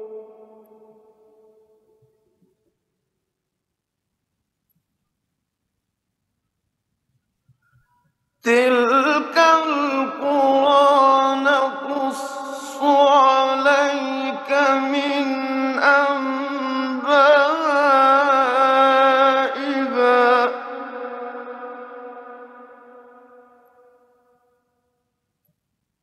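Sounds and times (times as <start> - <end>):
man chanting melodic recitation: 8.5 - 23.6.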